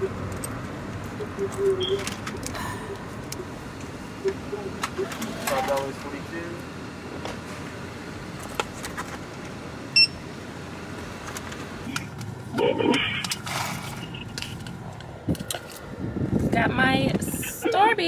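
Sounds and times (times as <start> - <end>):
short high beep: 10.0 - 10.2.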